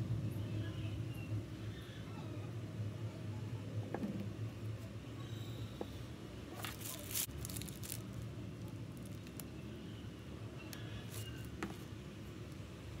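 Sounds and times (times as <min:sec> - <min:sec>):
paper rustling: 0:06.5 - 0:08.2
piping bag being squeezed: 0:06.6 - 0:09.5.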